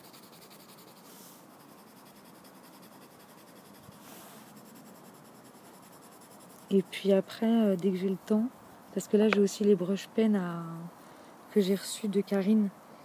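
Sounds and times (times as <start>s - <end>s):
pencil scratching on paper: 0.0s - 9.5s.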